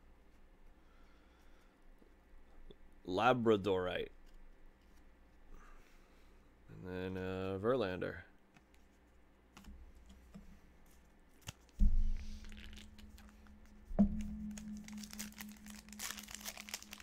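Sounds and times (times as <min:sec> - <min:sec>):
low steady hum: 0:00.0 - 0:17.0
foil wrapper crinkling and tearing: 0:11.4 - 0:13.8, 0:14.4 - 0:17.0
dull thumps: 0:11.8 - 0:14.9.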